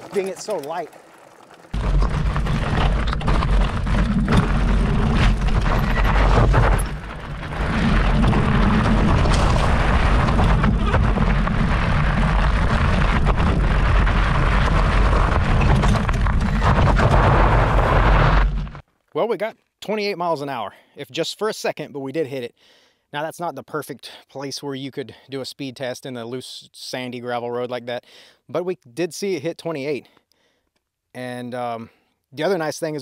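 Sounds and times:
tyres rolling over gravel: 0:00.0 - 0:18.8
low wind rumble: 0:01.7 - 0:18.8.

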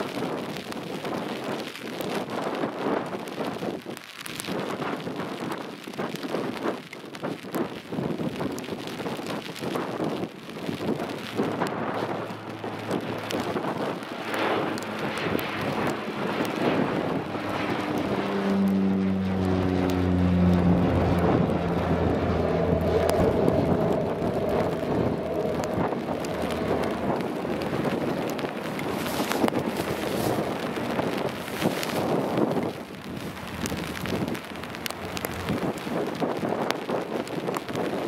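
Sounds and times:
wind buffeting microphone: 0:00.0 - 0:38.0
propeller engine hum: 0:08.3 - 0:38.0.

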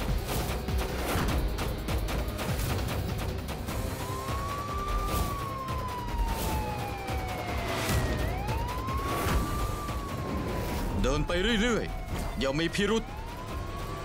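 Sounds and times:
police siren wailing: 0:03.5 - 0:14.0.

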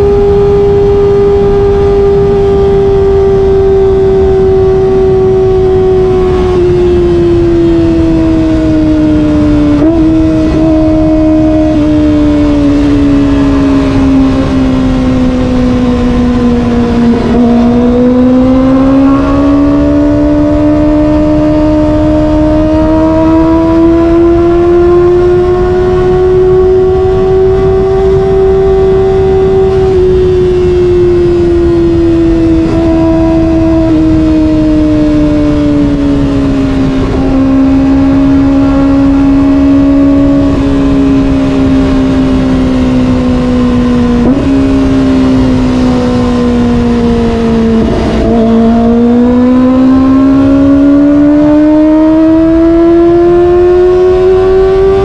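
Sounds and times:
motorcycle engine at high revs: 0:00.0 - 0:55.0
wind and road noise: 0:00.0 - 0:55.0.

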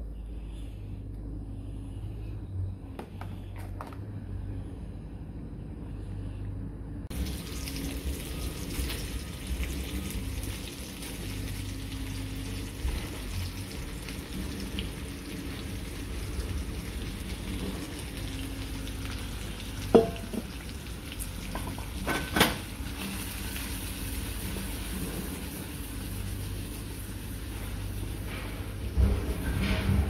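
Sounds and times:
low hum: 0:00.0 - 0:22.0
sausages sizzling in a frying pan: 0:07.1 - 0:28.3.

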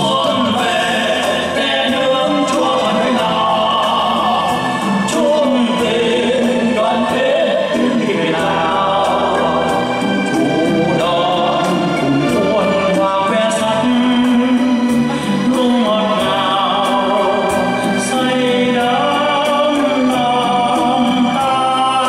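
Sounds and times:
backing music with steady beat: 0:00.0 - 0:22.0
man singing into a microphone: 0:00.0 - 0:22.0.

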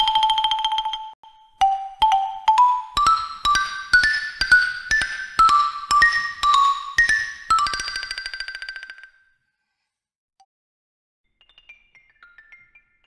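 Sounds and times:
xylophone notes struck with mallets: 0:00.0 - 0:09.2.

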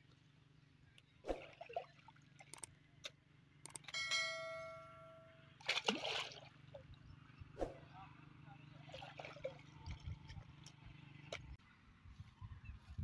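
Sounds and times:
water splashing: 0:01.3 - 0:02.6, 0:05.6 - 0:06.9, 0:08.8 - 0:10.8
sharp clicks: 0:02.5 - 0:04.0
bell-like ding: 0:03.9 - 0:05.4.

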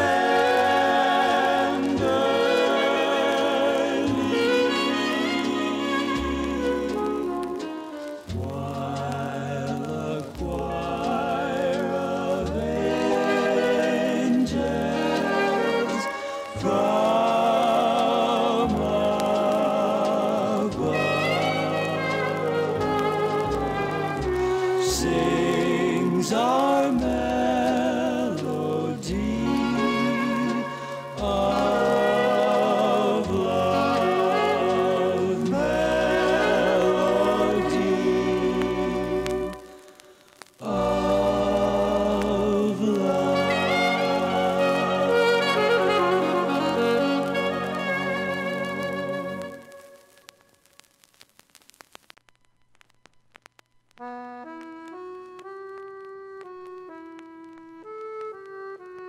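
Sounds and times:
low steady accompaniment: 0:00.0 - 0:39.7
person singing with vibrato: 0:00.0 - 0:50.2
long held notes: 0:00.0 - 0:50.3.

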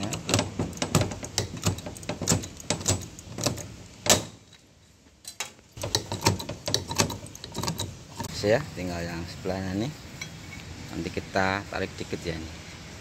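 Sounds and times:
small metallic clinks: 0:05.2 - 0:08.3.

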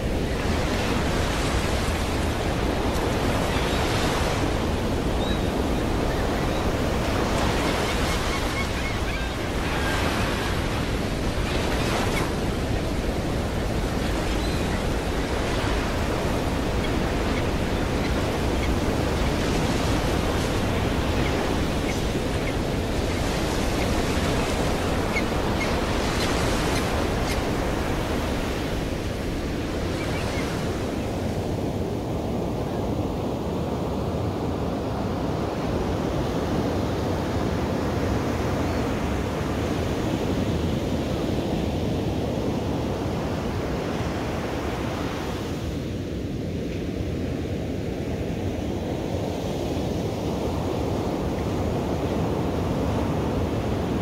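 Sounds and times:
ocean waves breaking: 0:00.0 - 0:33.5.

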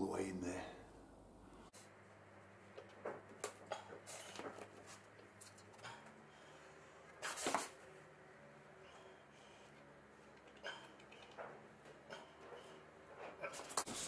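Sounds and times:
small clicks and rustles: 0:10.2 - 0:13.9.

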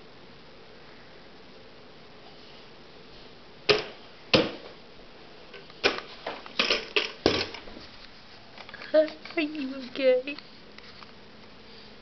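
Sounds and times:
plastic bucket being banged: 0:03.7 - 0:04.7.

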